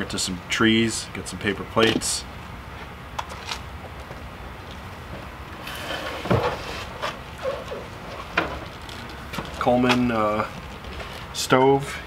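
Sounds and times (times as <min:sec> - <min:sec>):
rustling scrape: 0:05.6 - 0:09.1.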